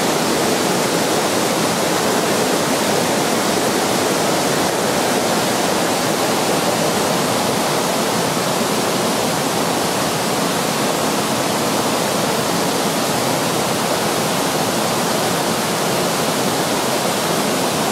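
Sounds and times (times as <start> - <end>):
river water rushing over rapids: 0.0 - 17.9.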